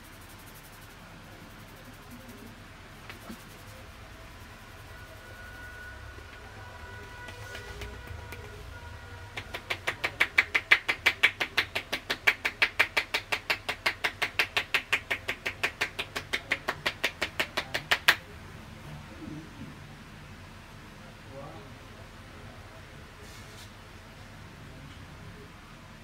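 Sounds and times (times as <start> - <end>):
hands slapping body: 7.1 - 8.7, 9.3 - 18.2.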